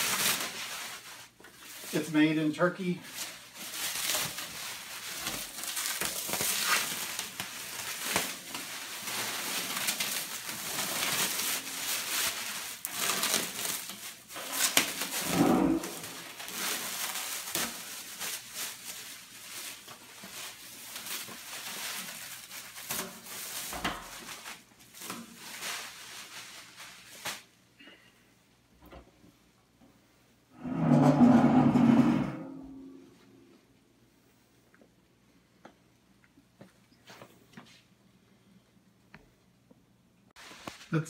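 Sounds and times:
plastic wrap crinkling: 0.0s - 28.0s.

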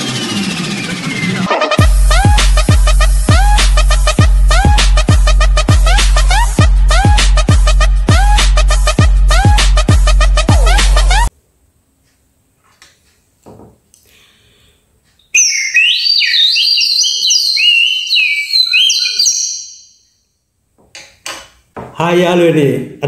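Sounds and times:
high-pitched warbling whistling: 15.3s - 20.3s.

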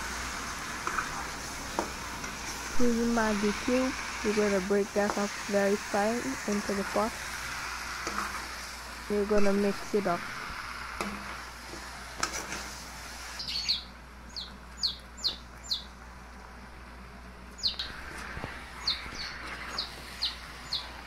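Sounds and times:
bird chirping: 13.4s - 15.9s, 17.6s - 17.9s, 18.8s - 20.9s.

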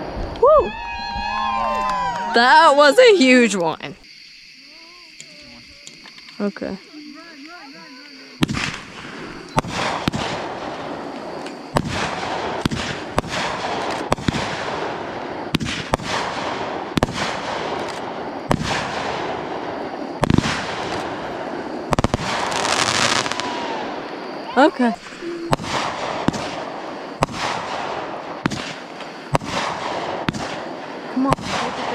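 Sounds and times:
fireworks crackling hiss: 0.0s - 31.9s
fireworks bangs: 7.1s - 31.9s.

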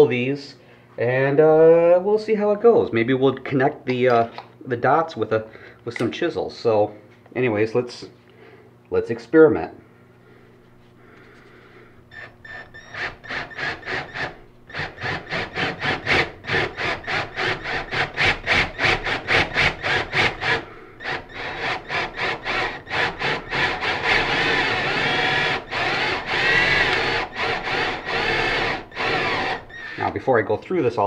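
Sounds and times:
power drill boring into wood: 12.1s - 30.1s.

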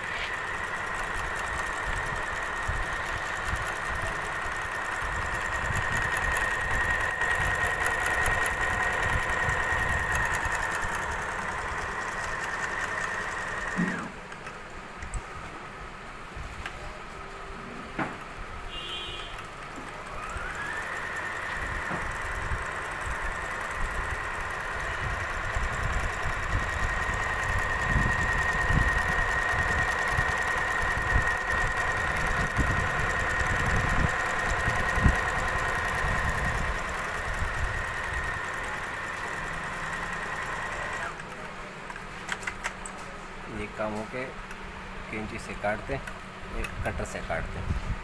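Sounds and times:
sewing machine motor whine: 0.0s - 14.6s, 18.6s - 42.8s
sewing needle rapid thudding: 0.3s - 14.2s, 19.8s - 41.3s.

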